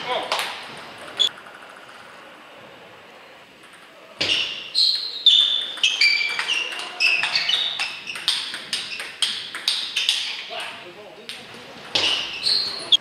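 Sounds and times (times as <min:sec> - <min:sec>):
table tennis ball hits: 0:00.0 - 0:01.7, 0:03.6 - 0:12.9
ball bouncing on table: 0:05.5 - 0:10.8, 0:11.9 - 0:12.8.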